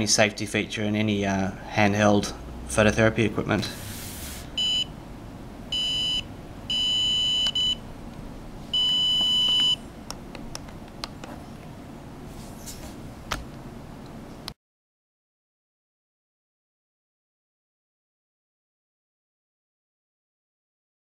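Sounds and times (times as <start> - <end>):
high electronic beeps: 4.6 - 4.9, 5.7 - 7.8.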